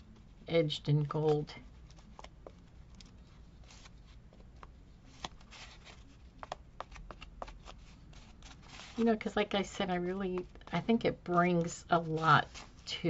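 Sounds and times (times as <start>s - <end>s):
paper and cardboard rustling: 1.2s - 9.4s, 11.5s - 13.0s.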